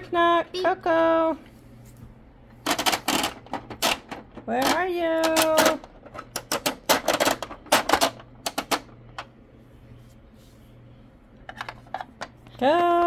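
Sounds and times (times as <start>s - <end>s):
plastic toy pieces clicking: 2.7s - 8.8s.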